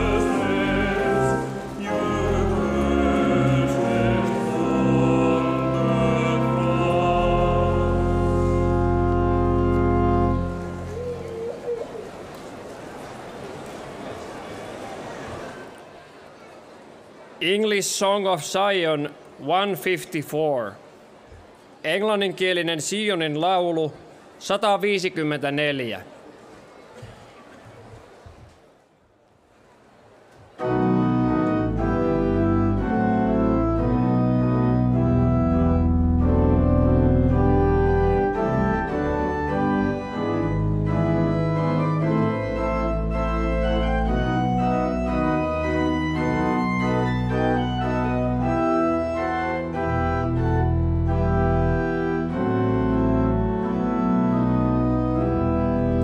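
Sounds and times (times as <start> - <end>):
organ playing a hymn: 0.0 - 12.0, 30.6 - 56.0.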